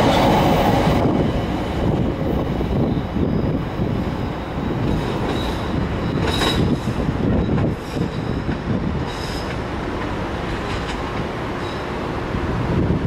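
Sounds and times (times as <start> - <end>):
train wheels rumbling: 0.0 - 13.0.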